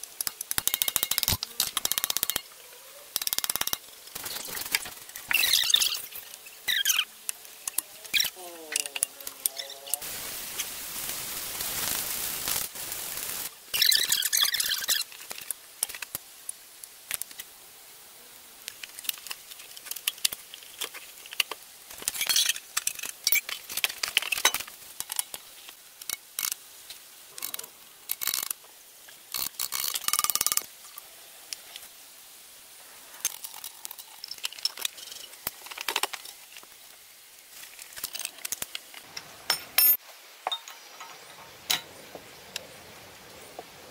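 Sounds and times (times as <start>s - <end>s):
metal parts clinking and scraping: 0.2s - 2.5s, 3.2s - 7.0s, 18.8s - 25.4s, 33.2s - 36.5s, 37.7s - 38.9s
spray paint can hissing: 9.6s - 15.1s.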